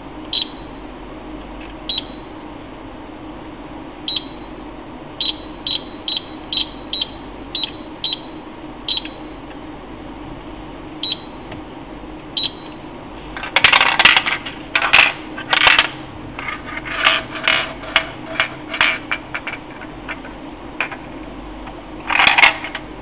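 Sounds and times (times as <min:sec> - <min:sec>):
steel ball rattling in plastic dome: 0:13.4 - 0:21.0.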